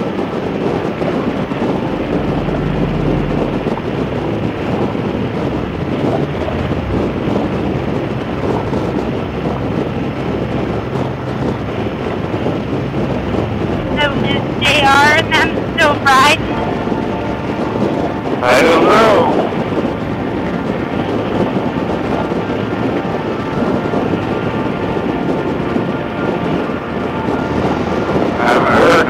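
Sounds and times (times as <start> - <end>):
wind rush on microphone: 0.0 - 29.0.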